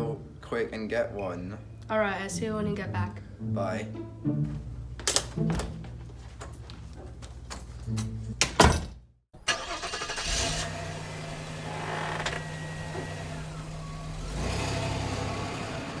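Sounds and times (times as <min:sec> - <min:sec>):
door banging shut: 0:08.4 - 0:09.0
car engine running: 0:09.5 - 0:16.0.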